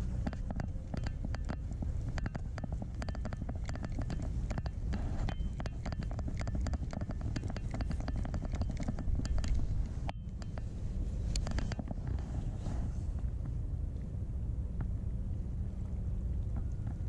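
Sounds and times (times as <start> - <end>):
fishing reel clicking: 0.2 - 10.6.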